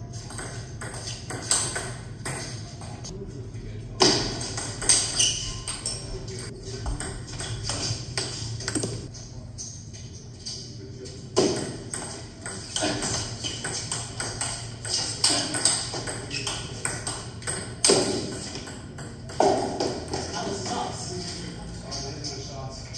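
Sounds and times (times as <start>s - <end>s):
table tennis balls clicking: 0.2s - 2.6s, 4.3s - 9.1s, 11.4s - 20.8s.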